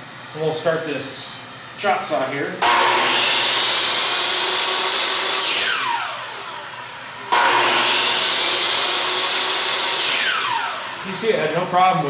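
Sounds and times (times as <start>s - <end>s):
electric chop saw motor: 2.6s - 11.9s.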